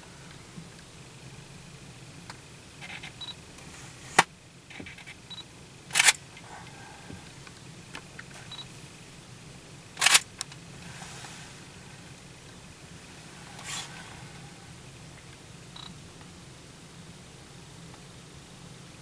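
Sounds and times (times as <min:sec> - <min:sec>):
low steady hum: 0:00.0 - 0:19.0
camera shutter clicks: 0:05.9 - 0:06.2, 0:10.0 - 0:10.3.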